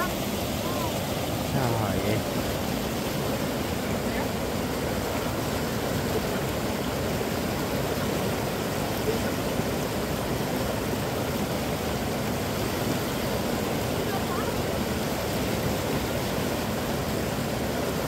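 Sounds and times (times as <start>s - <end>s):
fast-flowing stream rushing: 0.0s - 18.0s.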